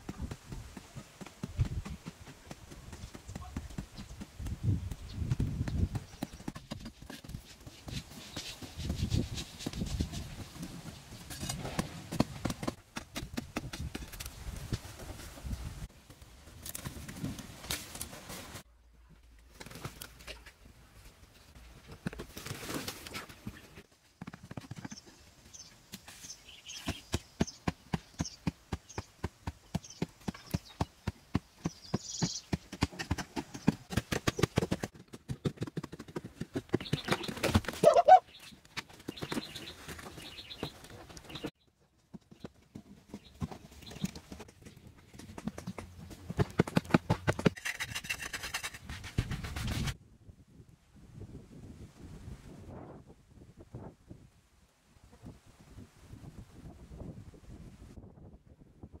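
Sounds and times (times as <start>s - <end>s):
dull knocks on packed earth: 0.0s - 10.7s, 11.3s - 14.8s
birds chirping faintly: 24.8s - 32.7s.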